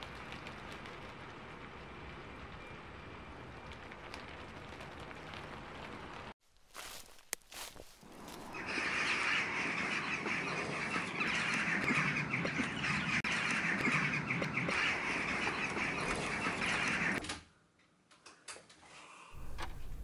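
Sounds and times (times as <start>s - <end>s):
chorus of birds calling: 8.1s - 17.2s.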